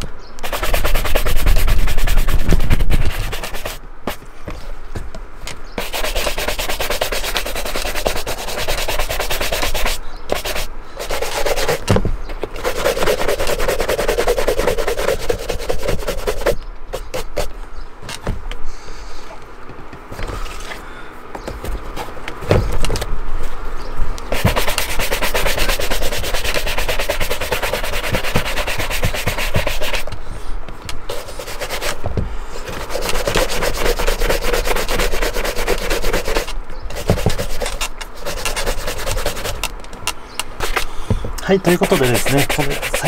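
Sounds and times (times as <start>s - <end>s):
shoe brush scrubbing leather: 0.4s - 4.2s, 5.8s - 11.8s, 12.6s - 17.5s, 24.3s - 30.1s, 31.1s - 32.0s, 32.6s - 39.7s, 41.4s - 43.0s.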